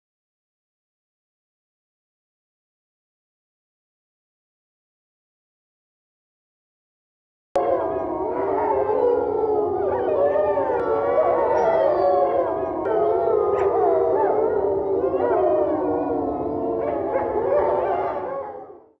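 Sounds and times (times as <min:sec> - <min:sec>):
wolves howling in chorus: 0:07.6 - 0:19.0.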